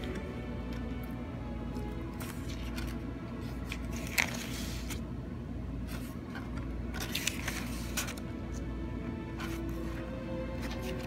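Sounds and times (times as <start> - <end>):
faint steady hum: 0.0 - 11.0
paper pages rustling: 1.8 - 5.1, 5.8 - 8.6, 9.4 - 11.0.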